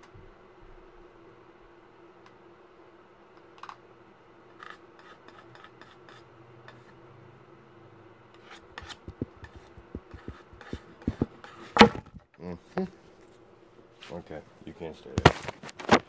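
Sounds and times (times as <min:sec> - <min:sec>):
faint rubbing and scraping: 0:08.4 - 0:12.2
phone handling knocks and bumps: 0:11.1 - 0:12.2.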